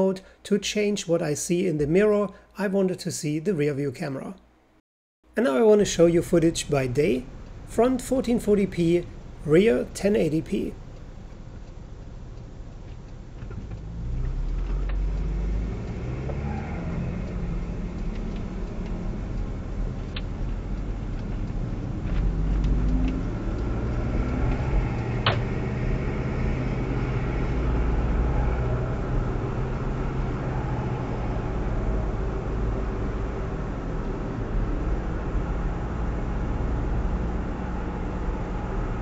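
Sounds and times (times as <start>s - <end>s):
road noise inside car: 5.3s - 39.0s
car engine accelerating: 9.1s - 39.0s.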